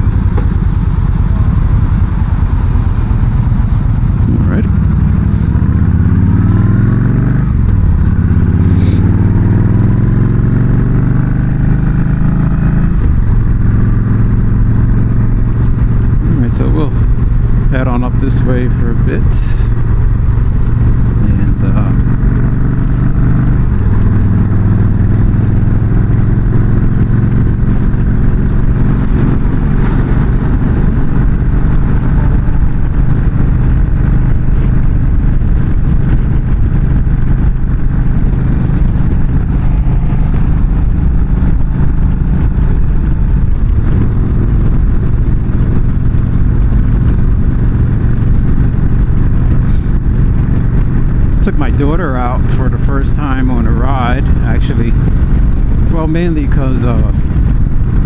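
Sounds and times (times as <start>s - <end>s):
motorcycle engine cruising: 0.0s - 58.0s
wind and road noise: 0.0s - 58.0s.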